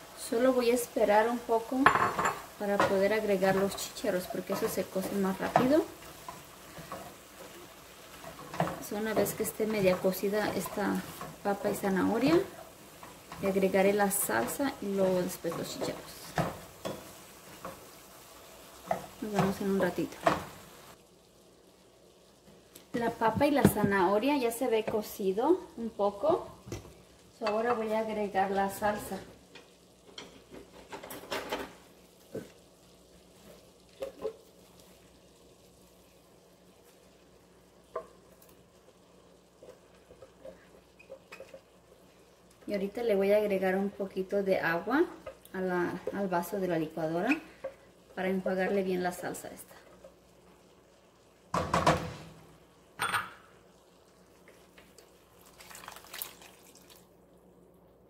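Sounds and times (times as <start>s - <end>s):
meat and vegetables sizzling: 0.0s - 58.0s
kitchenware clatter: 1.8s - 3.8s, 30.1s - 31.8s, 53.0s - 53.5s
liquid splashing into a skillet: 51.5s - 57.3s.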